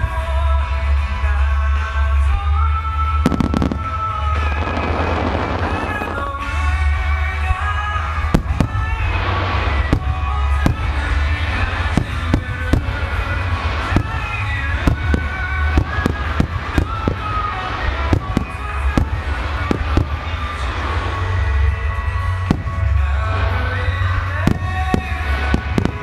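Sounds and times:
fireworks bursting: 0:00.0 - 0:26.0
music playing: 0:00.0 - 0:26.0.

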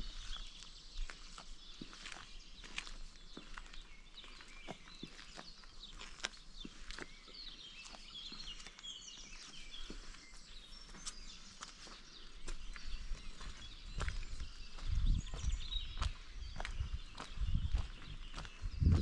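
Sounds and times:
small birds chirping: 0:00.0 - 0:19.0
footsteps walking: 0:07.8 - 0:19.0.

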